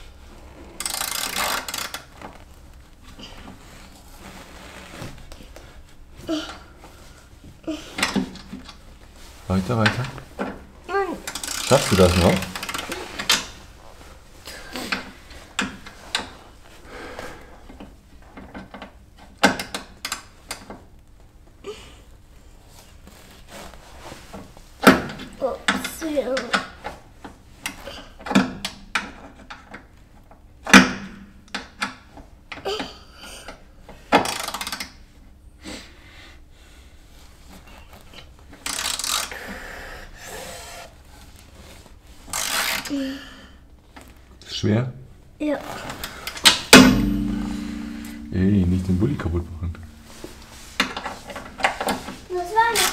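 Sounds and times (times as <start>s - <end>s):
softer working noise: 0.0s - 44.8s, 45.4s - 52.9s
hand ratchet clicking: 0.8s - 2.0s, 11.2s - 13.4s, 34.2s - 34.9s, 38.6s - 39.4s, 42.3s - 42.9s.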